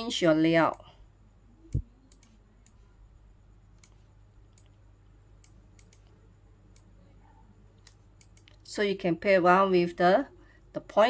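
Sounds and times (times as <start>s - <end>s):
computer mouse clicks: 1.7s - 2.8s, 3.8s - 4.8s, 5.4s - 6.9s, 7.8s - 8.6s.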